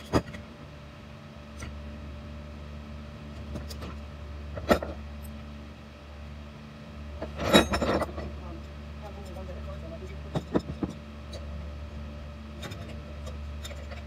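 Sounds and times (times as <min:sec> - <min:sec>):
steady low hum: 0:00.0 - 0:14.0
metal tools clinking on workbench: 0:07.3 - 0:08.3.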